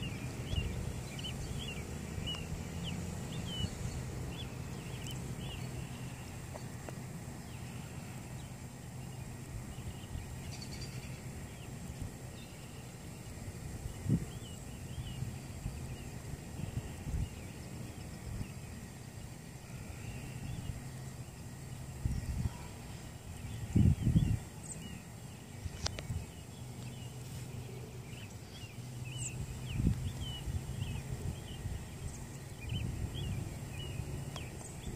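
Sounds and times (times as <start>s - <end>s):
steady low hum: 0.0s - 34.9s
faint bird chirps: 7.4s - 18.8s.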